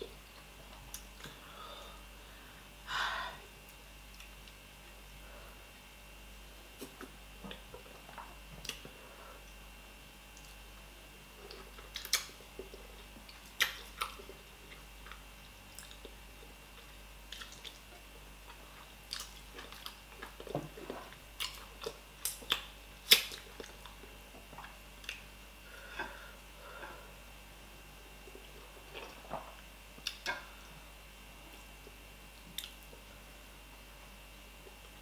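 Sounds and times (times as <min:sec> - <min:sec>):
person chewing food wetly: 0:11.3 - 0:27.2, 0:28.0 - 0:33.3.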